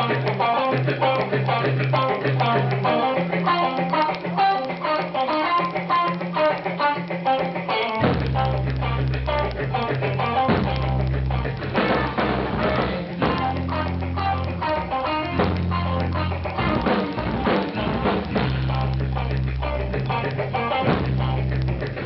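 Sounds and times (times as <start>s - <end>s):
bass guitar: 0.0s - 22.0s
drum kit: 0.0s - 22.0s
electric guitar lines: 0.0s - 22.0s.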